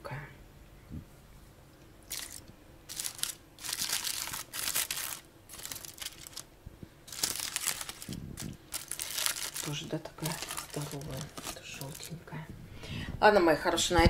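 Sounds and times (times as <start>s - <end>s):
aluminium foil crinkling: 2.1s - 6.5s, 7.1s - 12.3s.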